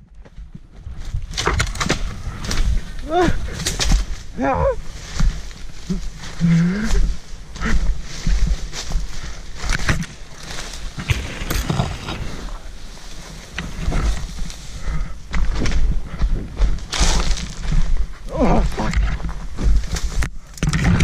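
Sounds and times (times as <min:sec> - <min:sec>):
vegetation rustling: 0:00.8 - 0:20.5
footfalls: 0:07.6 - 0:18.0
microphone handling noise: 0:08.2 - 0:21.0.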